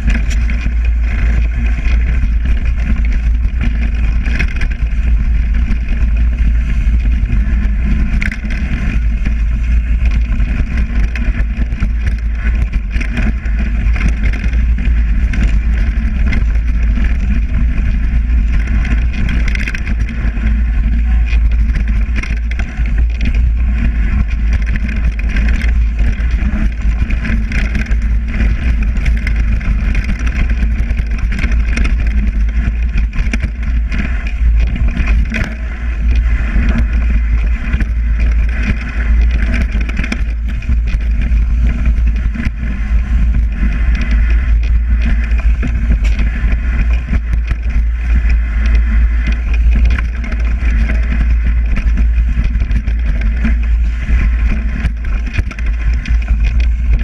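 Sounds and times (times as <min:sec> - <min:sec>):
bike rattling over bumps: 0:00.0 - 0:57.0
tyres rolling through dry leaves: 0:00.0 - 0:57.0
wind rumble on microphone: 0:00.0 - 0:57.0.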